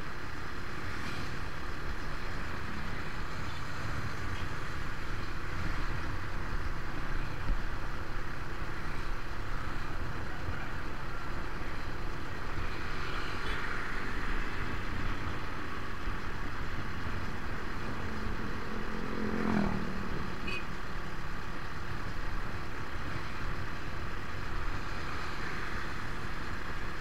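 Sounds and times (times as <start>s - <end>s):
road traffic noise: 0.0s - 27.0s
vehicle passing close by: 18.0s - 20.5s.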